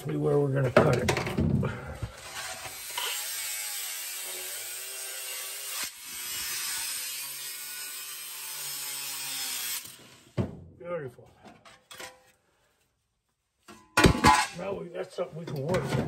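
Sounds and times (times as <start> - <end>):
abrasive disc cutting sheet steel: 2.4 - 10.4.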